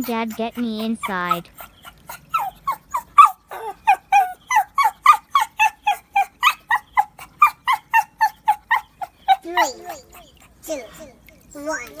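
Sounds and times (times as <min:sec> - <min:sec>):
dog yipping: 0:01.0 - 0:10.5.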